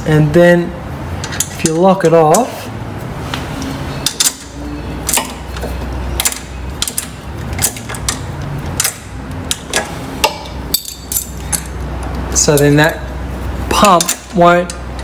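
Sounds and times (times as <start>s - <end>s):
spanner clicking on bolt: 1.2s - 2.5s, 4.0s - 12.8s, 13.7s - 15.0s.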